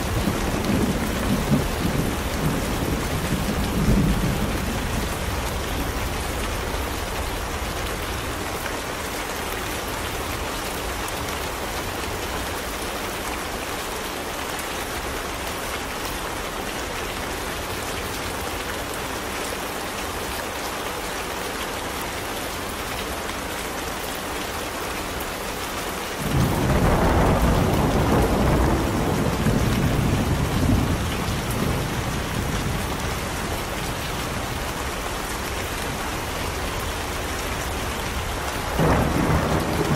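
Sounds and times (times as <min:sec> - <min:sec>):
thunder rumbling: 0:00.0 - 0:07.2, 0:26.2 - 0:34.5, 0:37.8 - 0:39.9
heavy rain: 0:00.0 - 0:39.9.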